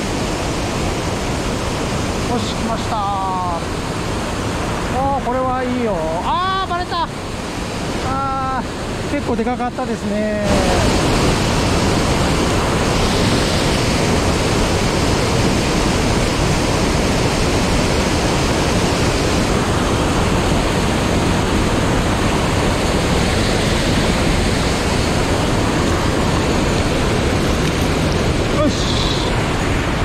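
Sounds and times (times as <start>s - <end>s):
stream water rushing over weir: 0.0s - 30.0s.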